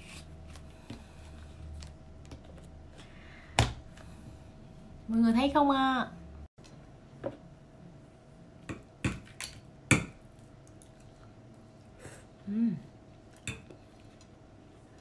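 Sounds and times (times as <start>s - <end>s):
person humming: 12.4s - 12.9s.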